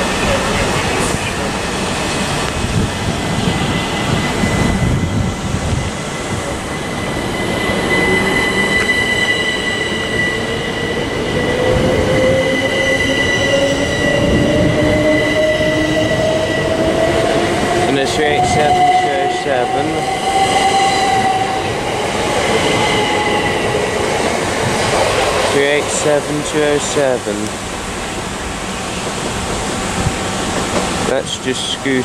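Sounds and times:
rumble of train wheels: 0:00.0 - 0:32.0
train steady high tone: 0:00.0 - 0:32.0.

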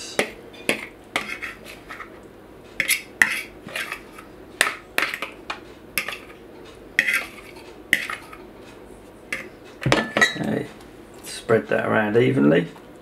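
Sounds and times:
utensil scraping a mixing bowl: 0:00.2 - 0:02.2, 0:02.8 - 0:05.4, 0:07.0 - 0:08.4.

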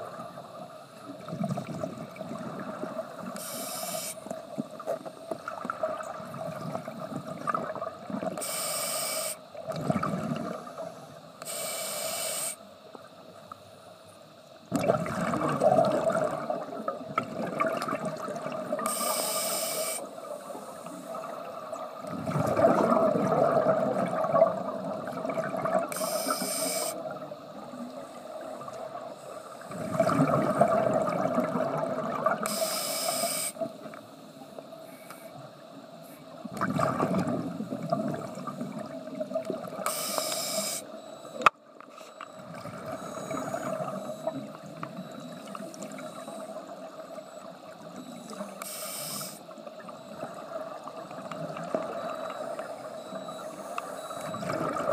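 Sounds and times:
faint steady hum: 0:00.0 - 0:54.9
diver inhaling through regulator: 0:03.4 - 0:04.2, 0:08.4 - 0:09.4, 0:11.4 - 0:12.7, 0:18.8 - 0:21.1, 0:25.9 - 0:27.0, 0:32.4 - 0:33.6, 0:39.9 - 0:40.9, 0:48.6 - 0:49.4
exhaled bubbles rushing: 0:09.7 - 0:10.7, 0:14.7 - 0:18.8, 0:21.2 - 0:25.9, 0:29.7 - 0:32.4, 0:36.5 - 0:39.8, 0:54.1 - 0:54.9.

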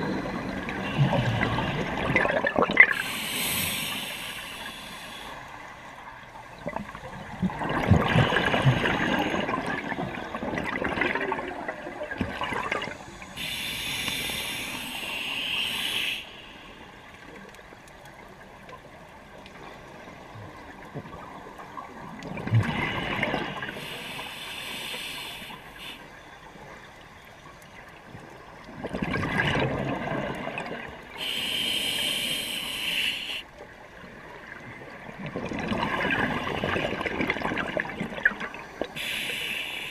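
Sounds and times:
diver breathing through regulator: 0:02.9 - 0:05.4, 0:12.9 - 0:17.0, 0:22.6 - 0:26.1, 0:31.2 - 0:33.5, 0:39.0 - 0:39.9.

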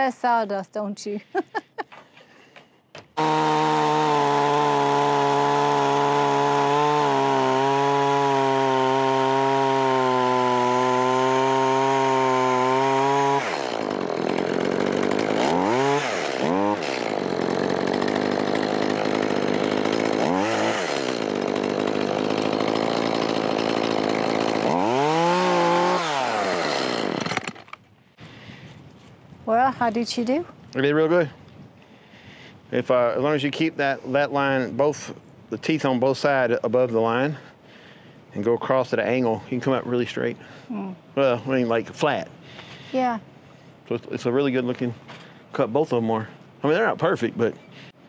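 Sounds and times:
chainsaw cutting timber: 0:03.0 - 0:27.8
chainsaw whining: 0:03.0 - 0:27.8.

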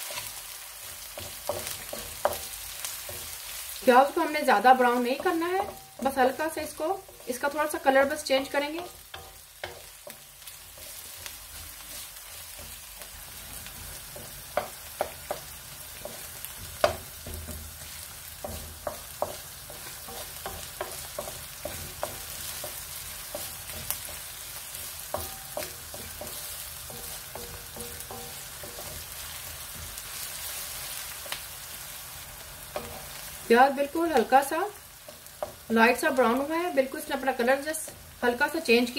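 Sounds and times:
onions sizzling in oil: 0:00.0 - 0:38.9
wooden spatula scraping pan: 0:04.2 - 0:30.9.

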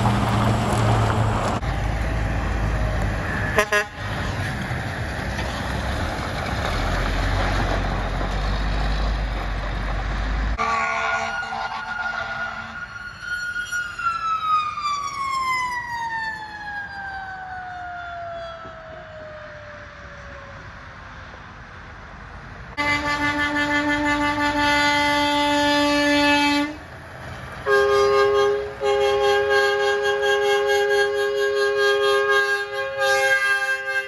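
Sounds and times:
truck train horn chord: 0:03.5 - 0:04.1, 0:10.6 - 0:12.8, 0:22.8 - 0:26.8, 0:27.6 - 0:34.0.

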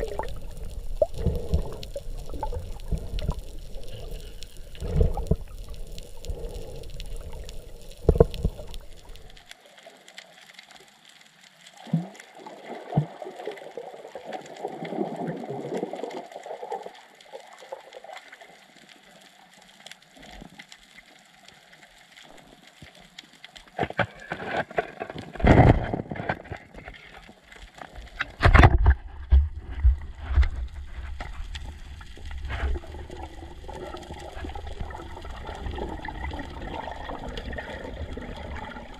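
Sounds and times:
water gurgling against microphone: 0:00.0 - 0:10.1, 0:11.7 - 0:18.9, 0:23.9 - 0:38.9
splashes and knocks: 0:23.8 - 0:26.9, 0:28.1 - 0:31.4.

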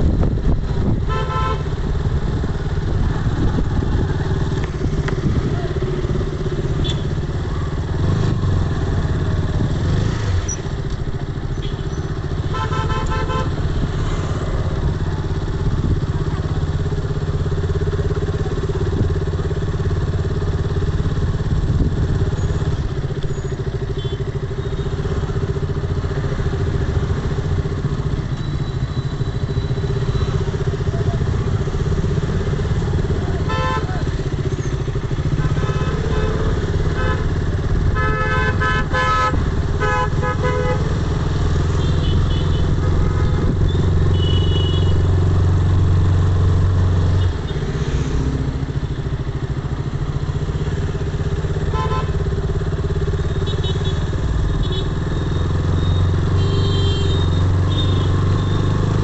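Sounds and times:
motorbike engine running: 0:00.0 - 0:59.0
vehicle horns honking: 0:01.0 - 0:01.8, 0:06.7 - 0:07.2, 0:11.6 - 0:13.8, 0:23.8 - 0:25.0, 0:33.3 - 0:41.0, 0:41.7 - 0:45.2, 0:51.5 - 0:55.0, 0:55.8 - 0:58.6.

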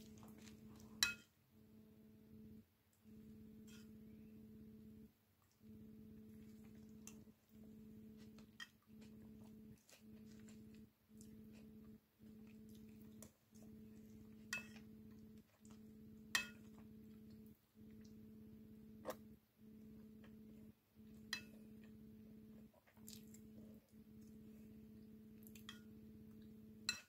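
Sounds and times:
steady low hum: 0:00.0 - 0:27.0
metal spoon clinking ceramic bowl: 0:01.0 - 0:01.3, 0:14.5 - 0:14.9, 0:16.3 - 0:16.7.

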